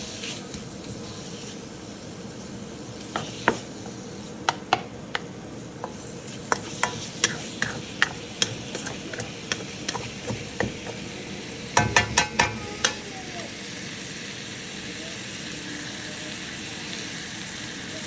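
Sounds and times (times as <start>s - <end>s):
bacon sizzling in a wok: 0.0s - 18.0s
wooden spatula knocking on wok: 3.1s - 11.2s, 11.8s - 13.0s.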